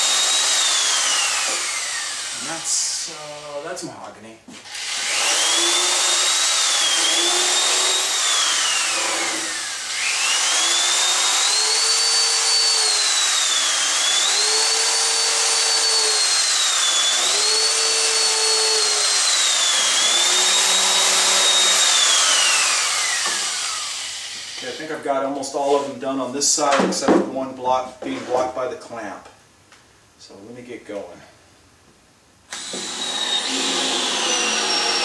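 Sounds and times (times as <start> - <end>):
electric drill driving screws: 0.0 - 3.2, 4.6 - 24.8, 32.5 - 35.0.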